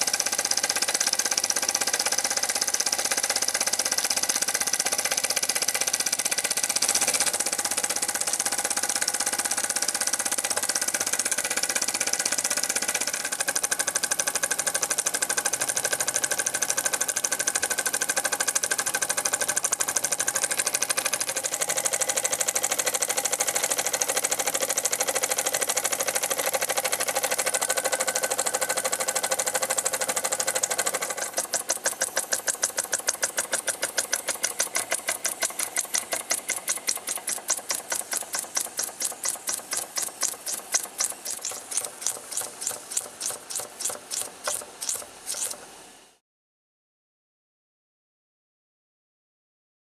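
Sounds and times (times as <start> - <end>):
toy steam engine running: 0.0 - 45.8.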